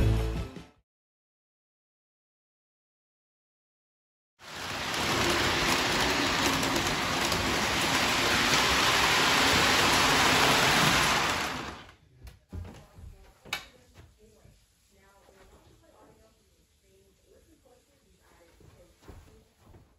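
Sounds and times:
heavy rain rushing: 4.4 - 11.9.

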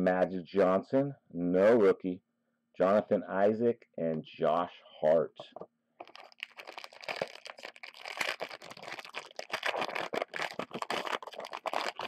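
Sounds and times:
wrapper being torn and crinkled: 6.0 - 12.0.

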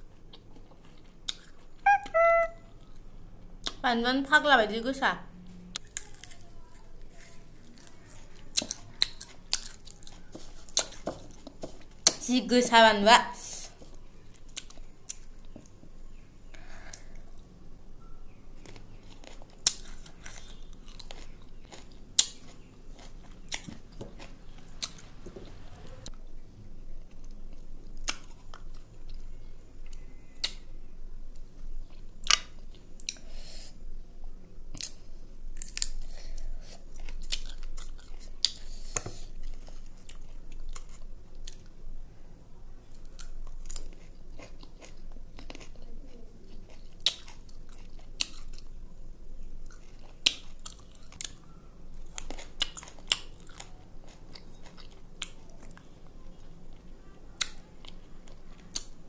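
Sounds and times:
person chewing: 0.1 - 3.8, 5.7 - 12.2, 18.6 - 26.2, 34.7 - 41.8, 42.9 - 48.8, 49.4 - 59.0
crunching fruit: 5.7 - 12.2, 18.6 - 26.1, 42.9 - 48.8, 49.4 - 59.0.

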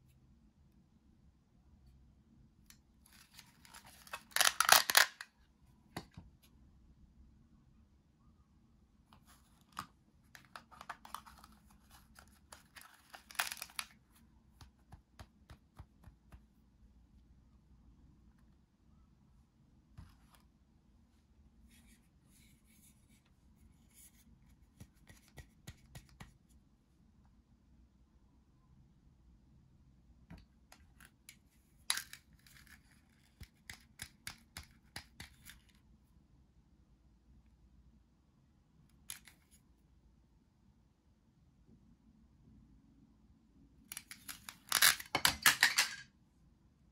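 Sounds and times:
plastic toy pieces clacking: 3.1 - 5.3, 10.4 - 14.0, 31.9 - 35.6, 43.9 - 46.1.

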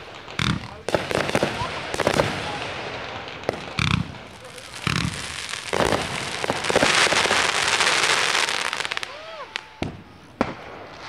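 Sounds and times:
fireworks crackling: 0.0 - 11.0.

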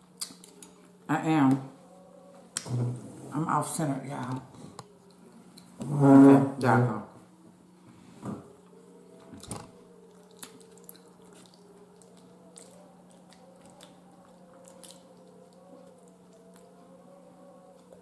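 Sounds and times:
faint steady hum: 0.0 - 18.0
chewing and mouth noises: 8.6 - 18.0.

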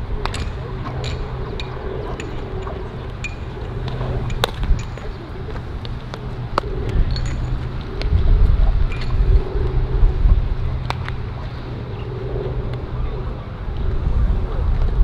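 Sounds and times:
steady low rumble: 0.0 - 15.0
sharp metallic knocks and pings: 0.3 - 5.0.

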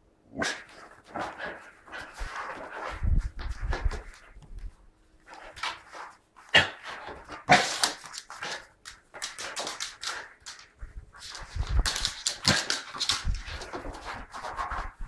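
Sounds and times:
claws clicking on laminate floor: 7.1 - 15.0.

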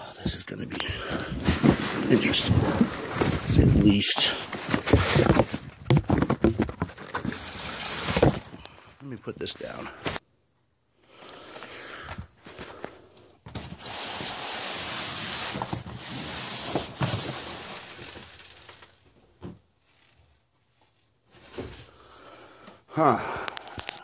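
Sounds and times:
cardboard box rustling: 0.8 - 8.6.

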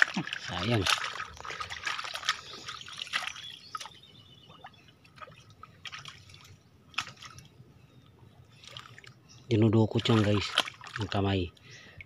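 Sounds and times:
hand squelching in wet mud: 0.0 - 3.9, 5.2 - 7.4, 10.0 - 11.1.

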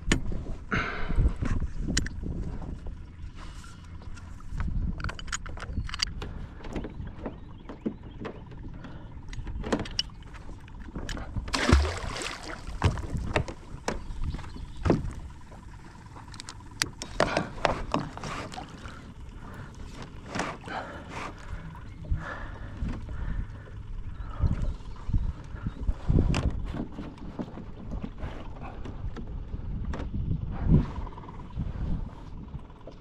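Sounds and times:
anchor splashing into water: 11.5 - 13.6.

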